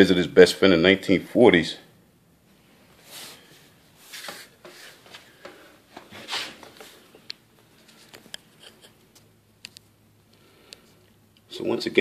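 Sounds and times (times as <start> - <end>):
handling rubbing and scraping: 3.0 - 9.3.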